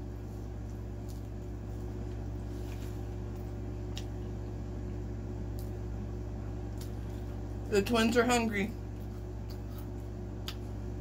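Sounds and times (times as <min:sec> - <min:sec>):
low hum: 0:00.0 - 0:11.0
chewing: 0:08.9 - 0:10.8.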